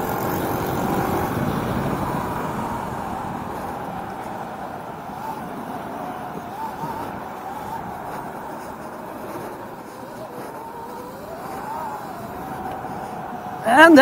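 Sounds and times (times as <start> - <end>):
tyre noise on asphalt: 0.0 - 14.0
wind rushing: 0.0 - 14.0.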